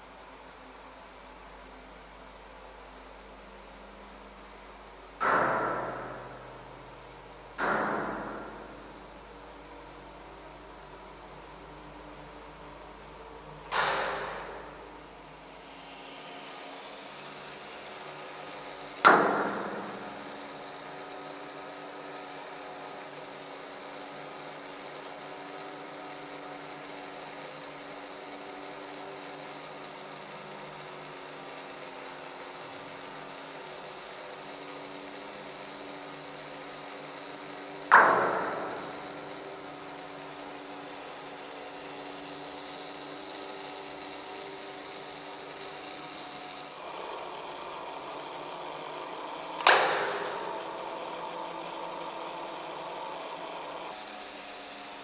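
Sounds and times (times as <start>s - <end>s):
small motor humming: 0.0s - 55.0s
metallic strike on radiator: 5.2s - 9.4s, 37.9s - 39.8s, 49.6s - 51.3s.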